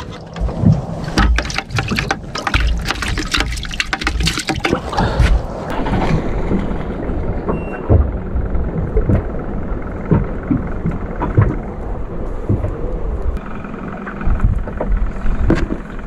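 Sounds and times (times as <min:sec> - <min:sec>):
wind buffeting microphone: 0:04.7 - 0:13.4.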